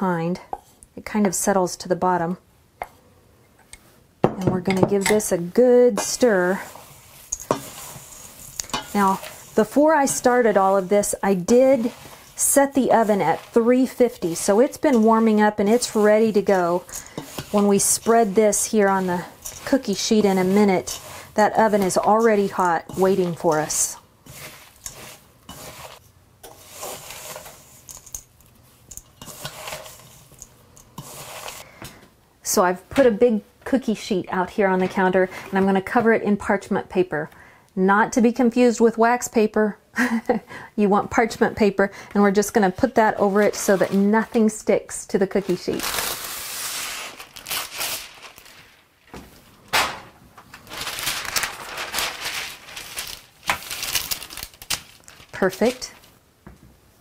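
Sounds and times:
spoon stirring in metal bowl: 4.4 - 31.6
parchment paper rustling and crinkling: 5.9 - 31.6, 45.3 - 56.2.

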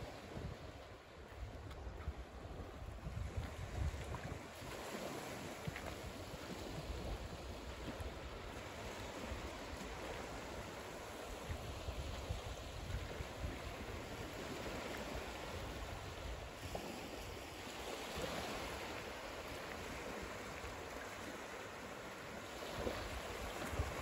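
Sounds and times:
wind rumbling on microphone: 0.0 - 21.6, 22.5 - 24.0
small waves lapping on a beach: 0.0 - 24.0.

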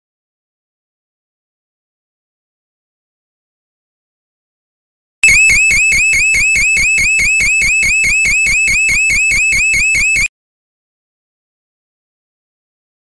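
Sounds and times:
high-pitched warbling alarm siren: 5.2 - 10.3.

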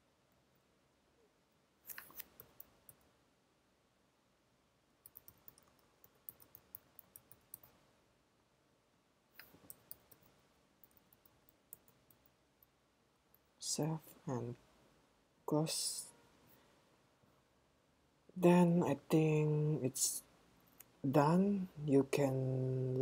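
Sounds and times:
typing on computer keyboard: 5.0 - 7.7, 9.4 - 12.3.

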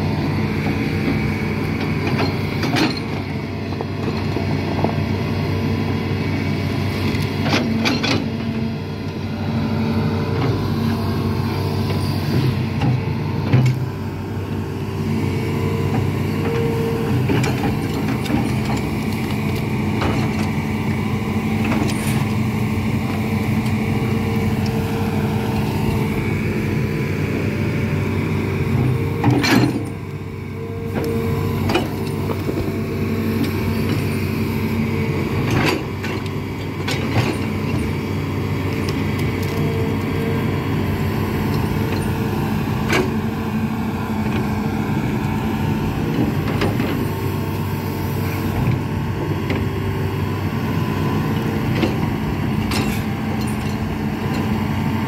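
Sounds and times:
excavator diesel engine under load: 0.0 - 55.0
track chains clanking: 17.3 - 20.6, 52.6 - 54.4.

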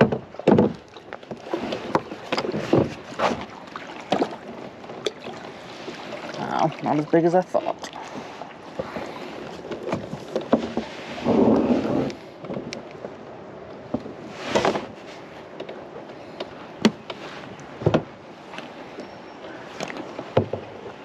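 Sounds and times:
knocks and clicks on hull: 0.0 - 21.0
scraping rustle: 8.1 - 12.7, 14.2 - 15.4.

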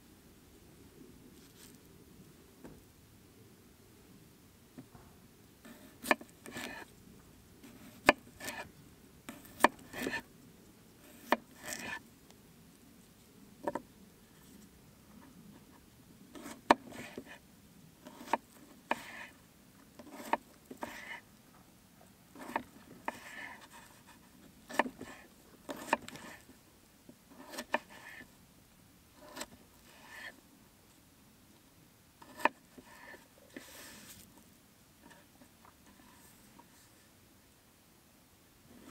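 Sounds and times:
knife slicing and scraping: 9.4 - 10.2, 11.1 - 12.0, 27.4 - 28.1.

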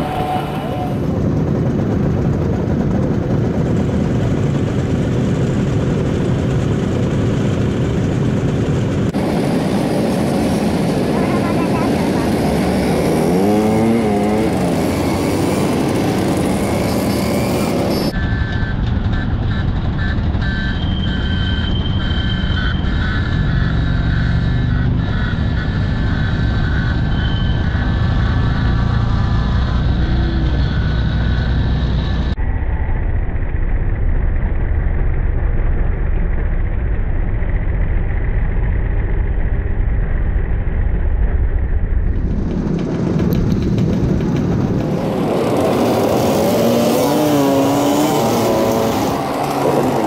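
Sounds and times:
scooter engines running: 0.0 - 32.4, 42.1 - 50.0
road and wind noise: 0.0 - 50.0
high wavering squeal: 13.5 - 33.1.

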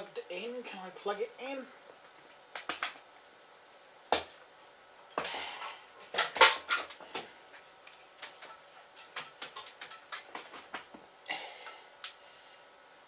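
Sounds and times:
hard objects clicking and knocking: 8.2 - 11.0.

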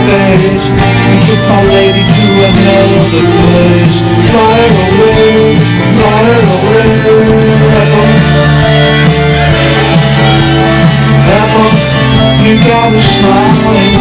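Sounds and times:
pop-rock band instrumental: 0.0 - 14.0.

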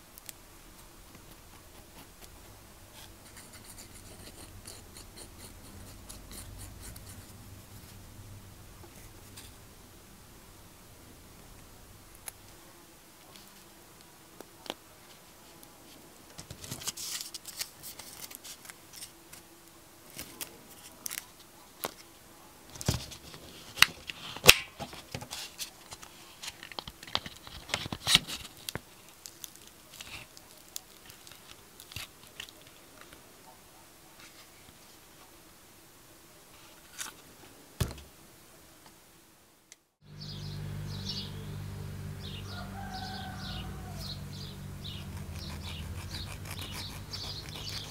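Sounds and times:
steady low hum: 0.0 - 13.1, 40.0 - 47.9
aluminium foil crinkling: 16.6 - 19.1, 20.1 - 22.1, 25.4 - 33.1
birds chirping: 40.0 - 47.9.

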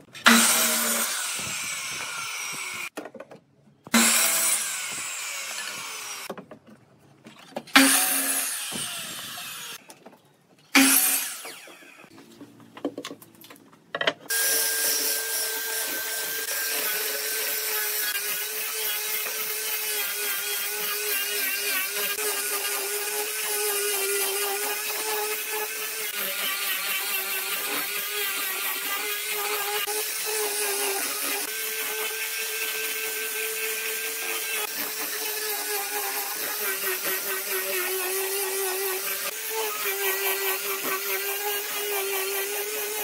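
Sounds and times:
angle grinder sanding wood: 0.0 - 2.9, 3.9 - 6.3, 14.3 - 43.0
miter saw cutting wood: 0.0 - 2.9, 3.9 - 6.3, 7.7 - 9.8, 10.7 - 12.1, 14.3 - 43.0.

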